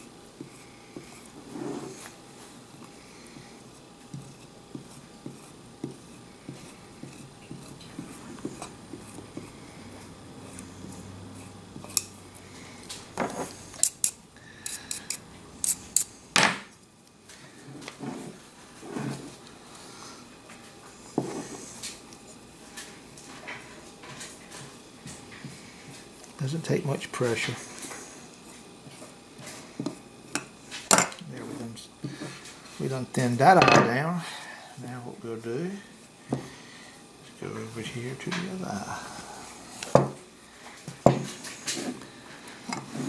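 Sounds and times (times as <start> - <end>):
knife scratching on hide: 4.0 - 12.1, 13.4 - 16.1.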